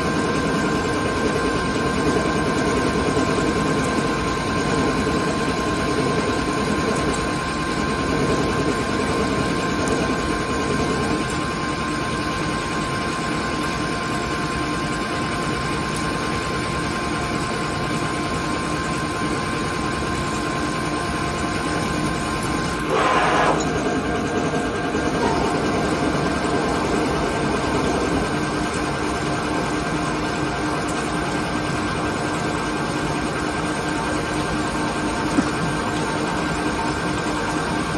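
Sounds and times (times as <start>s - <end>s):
lathe cutting with high whine: 21.6s - 30.5s.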